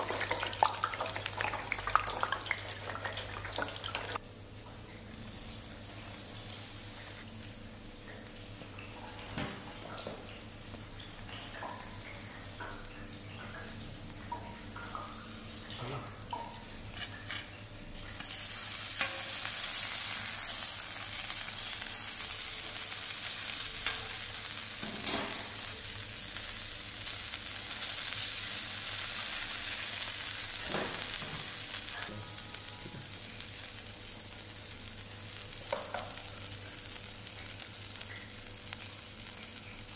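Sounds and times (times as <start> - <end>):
food sizzling on a griddle: 5.0 - 12.6, 15.8 - 39.9.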